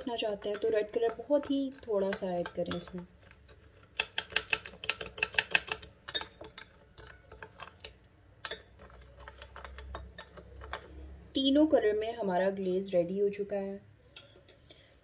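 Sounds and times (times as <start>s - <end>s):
metal spoon clicking on ceramic bowl: 4.0s - 8.8s.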